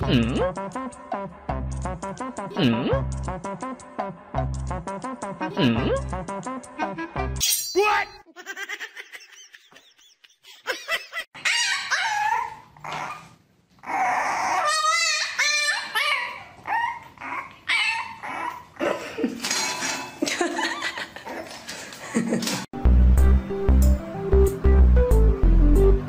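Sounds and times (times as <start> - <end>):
puppy yelping and whining: 11.4 - 18.8.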